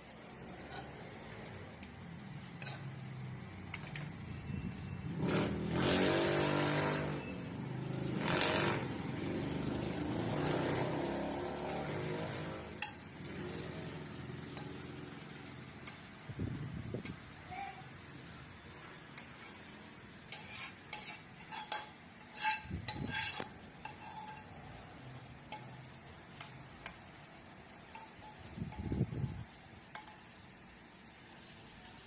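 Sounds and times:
vehicle engine passing: 4.9s - 15.8s
metal spoon striking wok: 10.2s - 16.2s, 19.2s - 31.2s.

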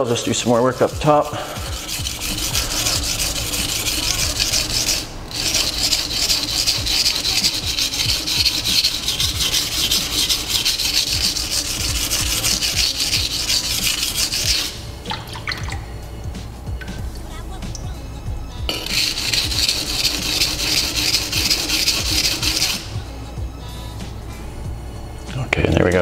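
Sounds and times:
knife grinding on whetstone: 0.0s - 15.6s, 18.7s - 23.1s.

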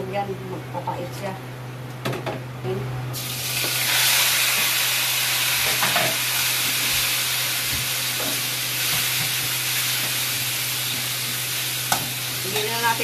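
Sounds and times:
meat sizzling in oil: 3.2s - 13.0s.

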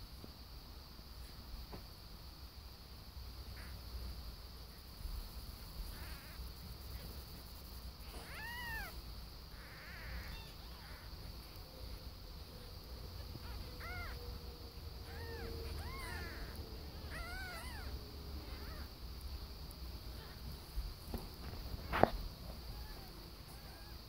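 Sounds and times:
kittens mewing: 5.9s - 7.0s, 8.0s - 11.6s, 13.0s - 19.0s, 21.9s - 24.0s.

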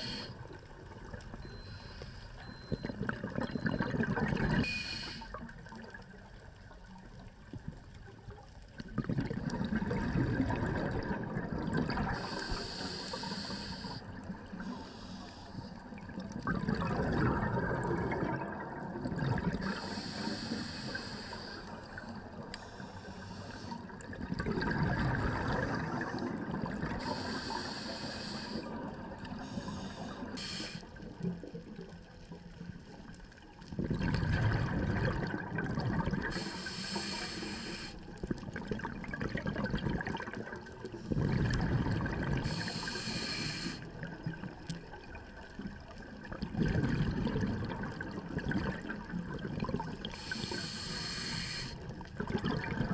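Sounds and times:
regulator inhale hiss: 0.0s - 0.5s, 4.7s - 5.4s, 12.1s - 15.8s, 19.6s - 24.0s, 26.9s - 31.0s, 36.2s - 38.2s, 42.4s - 44.0s, 50.0s - 52.0s
exhaled bubbles rushing: 2.7s - 4.7s, 8.8s - 12.3s, 16.0s - 19.7s, 23.9s - 27.1s, 33.7s - 36.4s, 38.2s - 42.7s, 44.0s - 50.5s, 51.9s - 52.9s.

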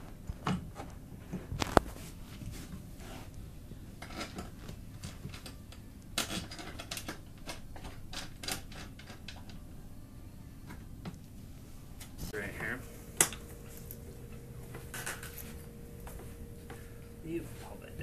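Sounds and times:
frame parts clicking and rattling: 6.2s - 9.6s.

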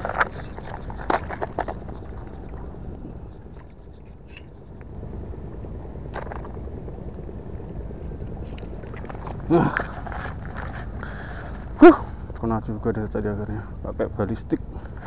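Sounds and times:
low background rumble: 0.0s - 15.0s.

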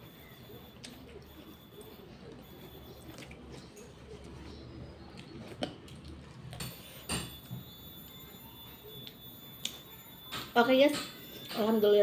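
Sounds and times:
person chewing: 0.2s - 7.6s.

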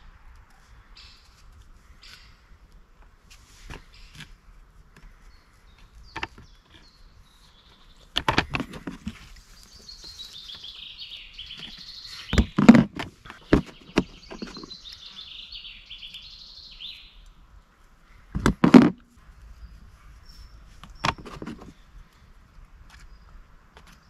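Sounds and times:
songbird warbling: 5.3s - 17.3s.

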